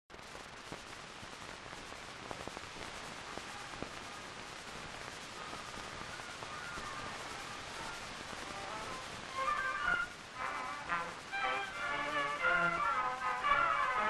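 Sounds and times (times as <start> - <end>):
film soundtrack hiss and crackles: 0.1 - 14.0
faint musical tones: 0.6 - 14.0.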